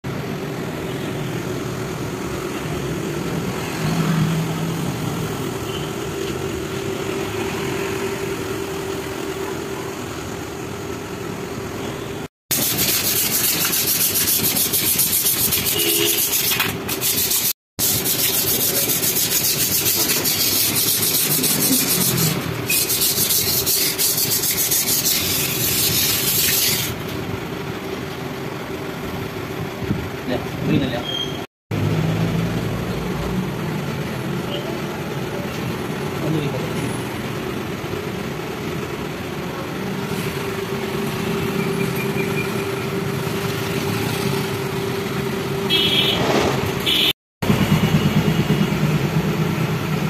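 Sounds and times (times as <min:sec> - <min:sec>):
hand scraping on metal: 0:12.7 - 0:27.0.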